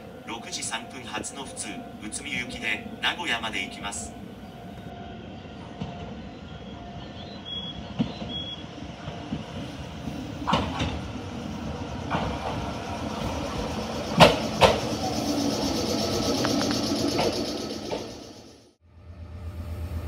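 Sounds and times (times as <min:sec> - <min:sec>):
electric train pulling in: 0:00.0 - 0:20.0
train wheels clacking: 0:12.0 - 0:18.5.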